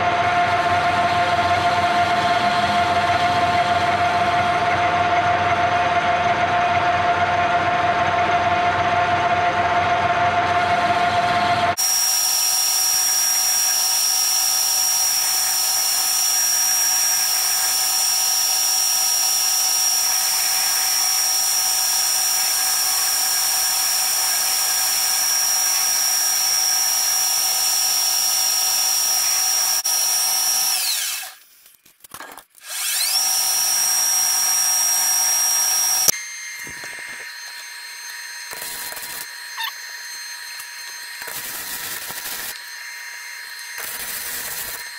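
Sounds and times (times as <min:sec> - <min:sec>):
metal lathe whining: 0:00.0 - 0:31.4, 0:32.6 - 0:44.9
arc welding crackle: 0:38.0 - 0:39.9, 0:40.6 - 0:44.9.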